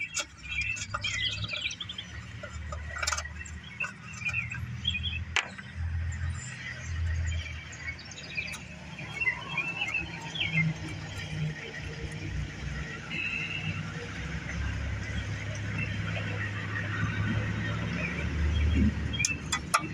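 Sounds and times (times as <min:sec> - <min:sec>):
clicks and knocks of handling: 0:00.0 - 0:05.8, 0:19.2 - 0:19.9
small birds chirping: 0:00.0 - 0:12.3, 0:13.1 - 0:19.9
distant machinery rumble: 0:00.0 - 0:19.9.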